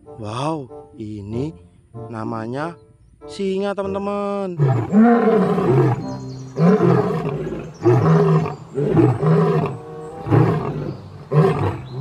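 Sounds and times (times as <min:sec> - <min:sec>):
lion roaring: 0:04.6 - 0:06.0, 0:06.6 - 0:12.0.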